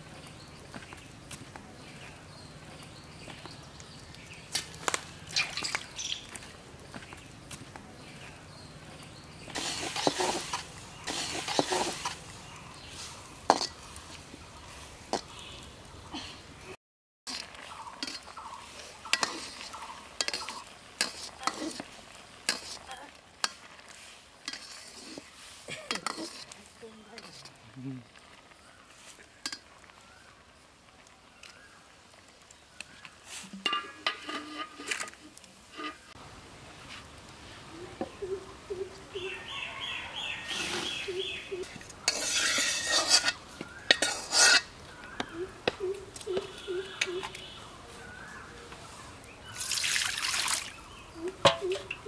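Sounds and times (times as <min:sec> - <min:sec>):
slices sizzling in oil: 0:00.1 - 0:16.0, 0:17.3 - 0:38.1, 0:38.9 - 0:52.0
metal ladle scraping a wok: 0:09.6 - 0:12.3, 0:17.3 - 0:26.6, 0:33.3 - 0:36.2, 0:41.6 - 0:44.8, 0:51.4 - 0:52.0.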